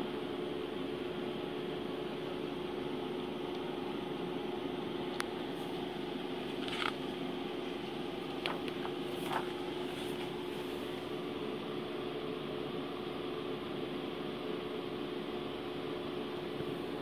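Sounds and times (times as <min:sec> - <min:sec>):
machine hum: 0:00.0 - 0:17.0
page rustling: 0:06.4 - 0:11.1.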